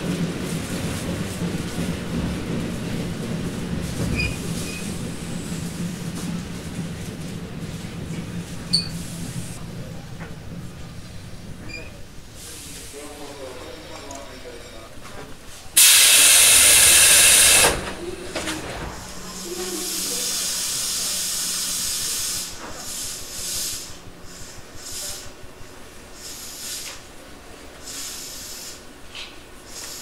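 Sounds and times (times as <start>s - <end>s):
short puffs of air: 15.8s - 17.8s
compressed air hissing: 15.8s - 18.2s, 19.1s - 25.4s, 26.1s - 27.1s, 27.8s - 29.0s.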